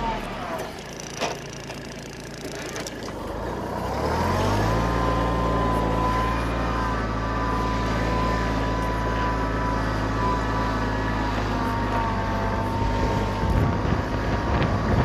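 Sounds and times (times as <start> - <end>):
tractor diesel engine revving: 0.0 - 15.0.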